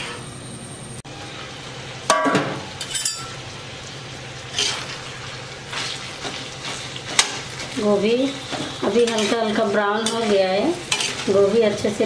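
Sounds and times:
metal spatula scraping iron pan: 8.5s - 11.4s.

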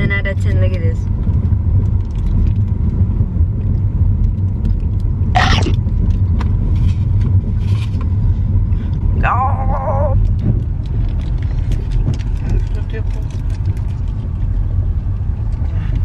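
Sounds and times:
car road rumble inside cabin: 0.0s - 16.0s.

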